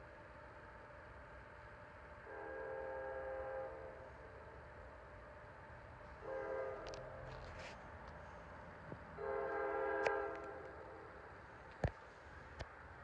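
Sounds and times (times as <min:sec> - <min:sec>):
distant train horn blasts: 0:02.2 - 0:04.5, 0:06.2 - 0:07.8, 0:09.1 - 0:11.1.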